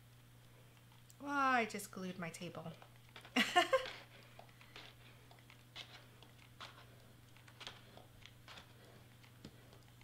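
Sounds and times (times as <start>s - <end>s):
steady low hum: 0.0s - 10.0s.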